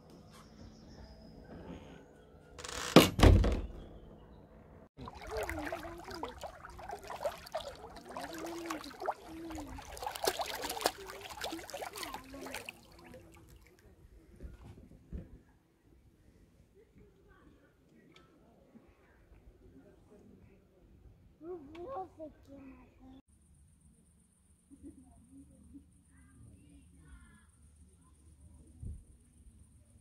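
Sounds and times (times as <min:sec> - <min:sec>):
loud thump: 0:03.0 - 0:03.9
water lapping and splashing: 0:05.0 - 0:13.9.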